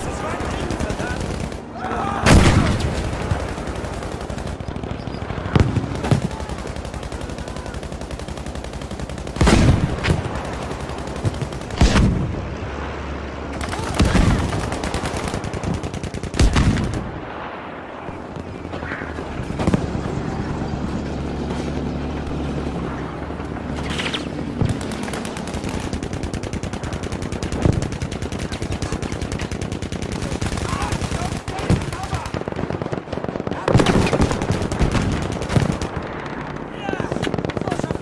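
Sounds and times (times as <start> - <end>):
rapid machine-gun fire: 0.0 - 12.2, 13.6 - 17.2, 23.9 - 38.0
heavy explosion blasts: 2.2 - 3.6, 4.6 - 6.5.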